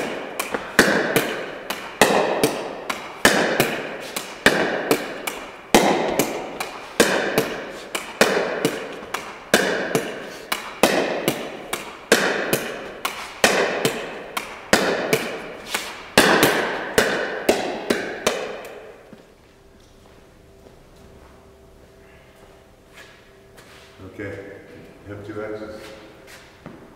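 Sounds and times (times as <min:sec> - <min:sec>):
ball knocking off wall and floor: 0:00.0 - 0:18.9
paddle hitting plastic ball: 0:00.0 - 0:19.0.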